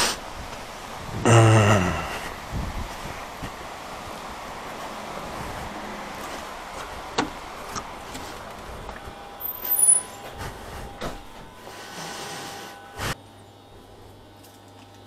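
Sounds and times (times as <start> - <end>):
outdoor background noise: 0.0 - 15.0
footsteps: 4.8 - 11.5.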